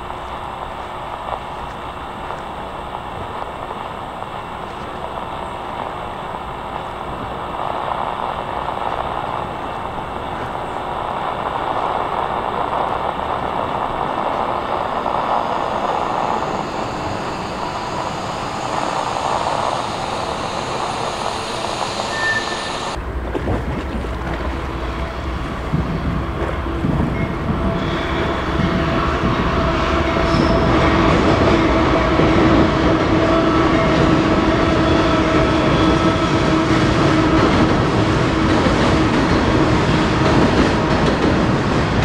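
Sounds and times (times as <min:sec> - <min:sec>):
lift machinery rumbling: 0:01.0 - 0:23.0
high squeal: 0:12.9 - 0:23.0, 0:29.8 - 0:31.6.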